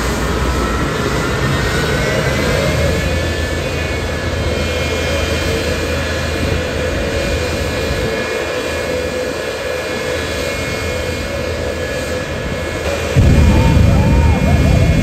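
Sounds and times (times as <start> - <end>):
jet engines idling whine: 0.0 - 15.0
afterburner deep rumble: 12.9 - 15.0.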